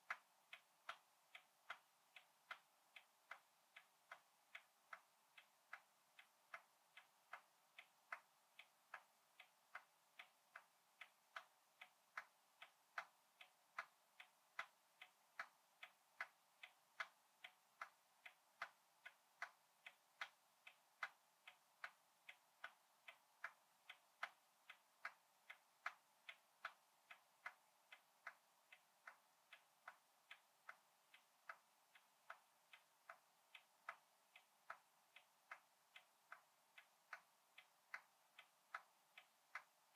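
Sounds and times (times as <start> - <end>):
clock ticking: 0.0 - 39.9.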